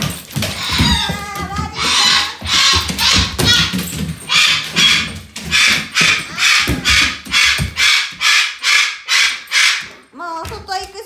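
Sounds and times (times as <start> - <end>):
cockatoo screaming: 4.3 - 9.9.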